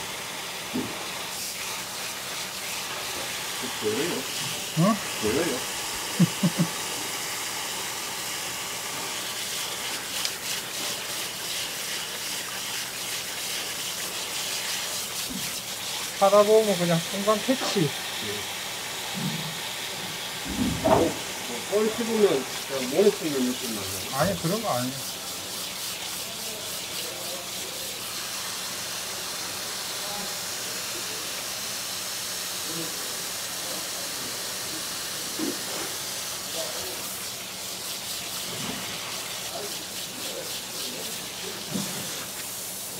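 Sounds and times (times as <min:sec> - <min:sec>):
tap water running: 0:00.0 - 0:42.9
hands rubbing and rinsing: 0:09.1 - 0:17.9, 0:20.8 - 0:28.3, 0:35.5 - 0:42.9.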